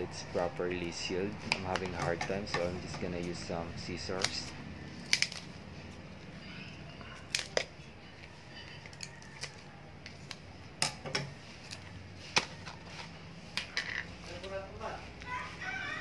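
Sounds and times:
scissors snipping plastic: 0:04.1 - 0:05.5, 0:07.2 - 0:07.8.

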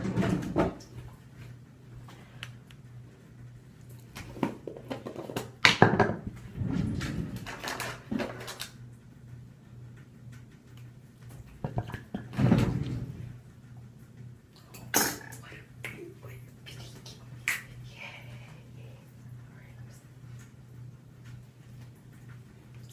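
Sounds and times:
steady low hum: 0:00.0 - 0:22.9
items knocking on counter: 0:04.4 - 0:06.3.

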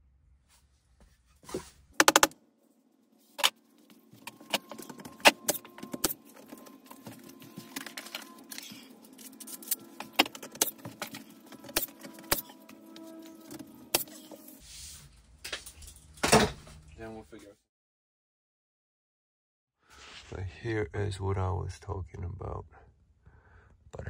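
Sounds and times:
sharp knocks and clicks on wood: 0:02.0 - 0:02.4.

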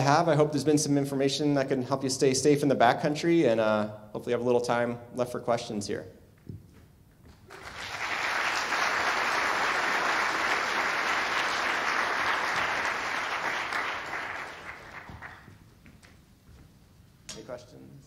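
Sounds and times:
audience applauding: 0:07.4 - 0:15.6.

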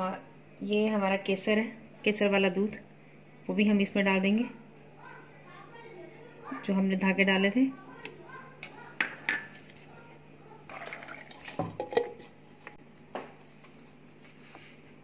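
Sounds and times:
faint steady hum: 0:00.0 - 0:15.0
plastic jar clinking and knocking: 0:11.5 - 0:12.3.

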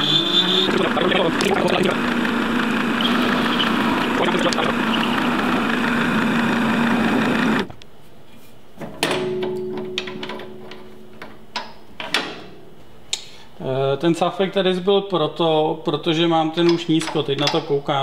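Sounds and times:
metal lathe cutting: 0:00.0 - 0:07.7.

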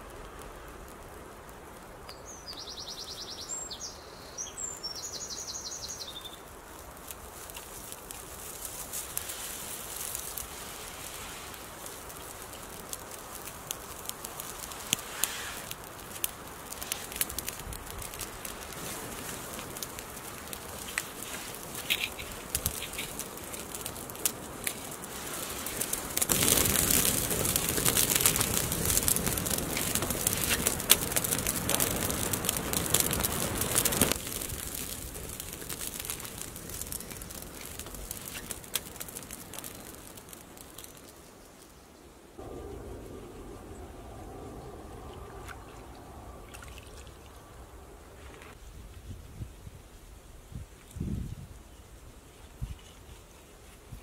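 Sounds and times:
campfire crackling and popping: 0:00.0 - 0:03.4, 0:05.8 - 0:41.7, 0:42.3 - 0:48.6
rush of flame: 0:06.7 - 0:41.1, 0:42.4 - 0:48.6.

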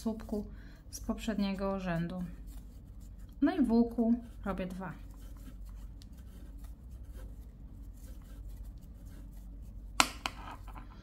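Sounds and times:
low steady hum: 0:00.0 - 0:11.0
cord scratching through stitches: 0:01.4 - 0:10.0.

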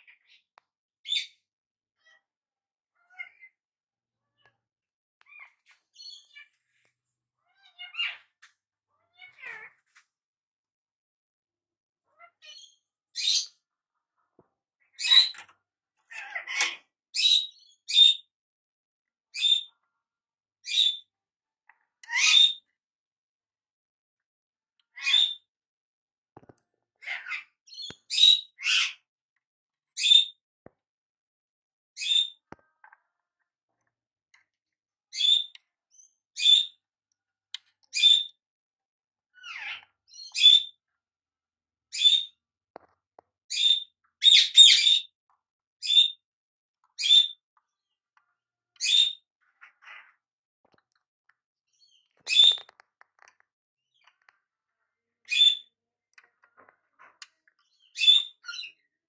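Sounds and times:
bird chirping: 0:30.0 - 0:30.4, 0:32.0 - 0:32.5, 0:35.2 - 0:36.8, 0:39.4 - 0:40.8, 0:45.8 - 0:46.2, 0:48.8 - 0:50.1, 0:51.7 - 0:53.3, 0:55.3 - 0:55.7, 0:57.0 - 0:58.9.

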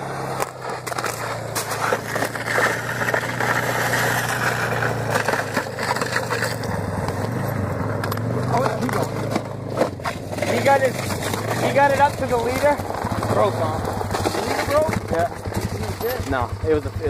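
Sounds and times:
engine idling: 0:00.0 - 0:17.0
boots crunching on ice: 0:00.3 - 0:15.0.

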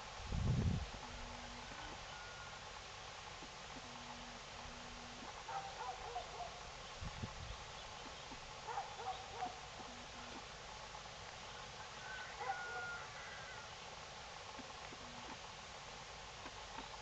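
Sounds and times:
young hawk crying: 0:12.0 - 0:13.7.

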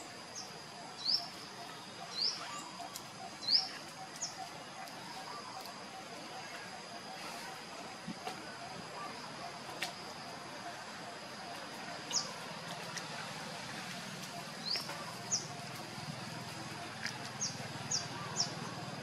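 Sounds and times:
steady high-pitched hum: 0:00.0 - 0:19.0
bird chirping: 0:00.4 - 0:05.6, 0:14.3 - 0:15.7.

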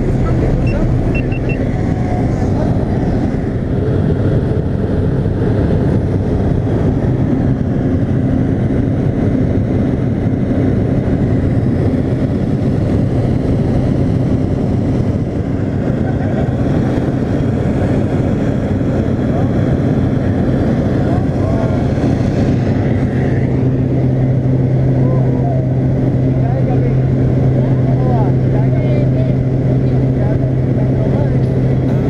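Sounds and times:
air rushing over airframe: 0:00.0 - 0:09.4
propeller plane engine drone: 0:00.0 - 0:32.0.

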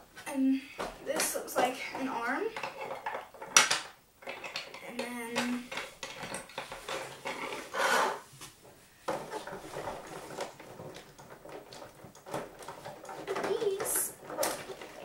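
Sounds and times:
plastic parts clicking on a table: 0:02.6 - 0:07.6.

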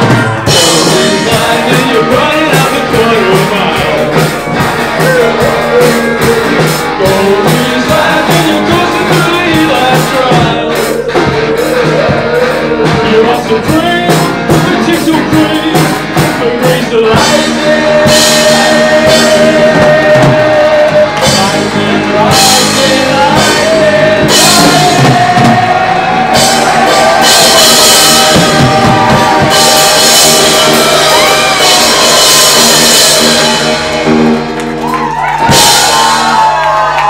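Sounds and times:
live rock band playing: 0:00.0 - 0:37.0.

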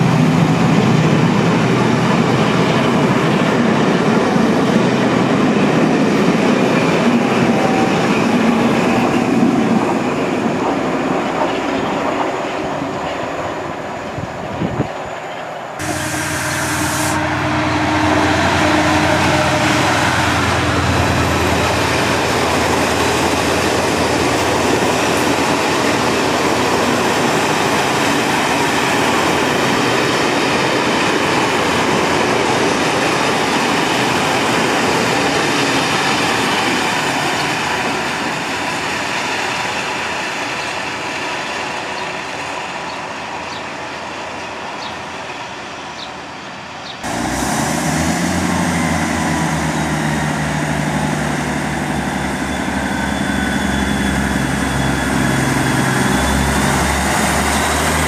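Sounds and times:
train engine hum: 0:00.0 - 0:58.0
train wheels on rails: 0:00.0 - 0:58.0.

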